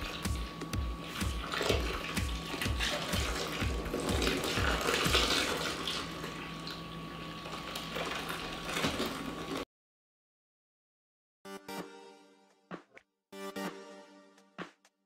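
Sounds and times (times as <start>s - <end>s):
milk pouring into plastic tub: 1.1s - 9.6s.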